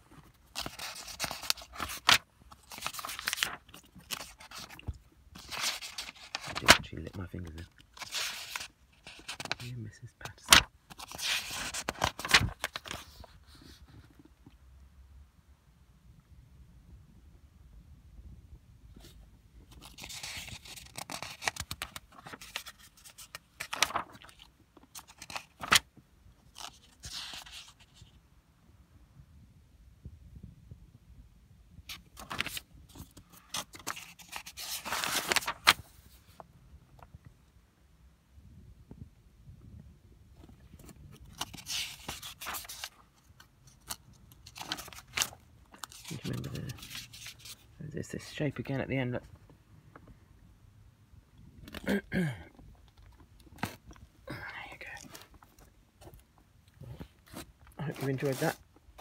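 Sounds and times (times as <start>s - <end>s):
paper pages rustling: 0.1s - 14.3s, 19.0s - 25.9s, 26.5s - 28.2s, 31.9s - 36.5s, 40.4s - 47.6s, 54.8s - 59.0s
paper pages flicking: 0.6s - 4.8s, 5.4s - 6.8s, 10.4s - 13.1s, 19.8s - 24.4s, 25.0s - 25.9s, 31.9s - 35.9s.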